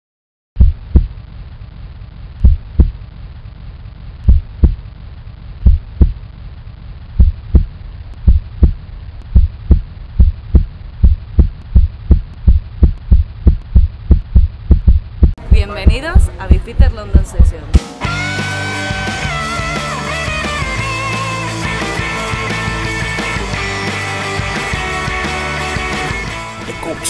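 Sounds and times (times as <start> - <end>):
heartbeat thumps: 0.6 - 1.2, 2.4 - 3.0, 4.2 - 4.9, 5.6 - 6.2, 7.1 - 17.8
low hum: 0.6 - 17.8.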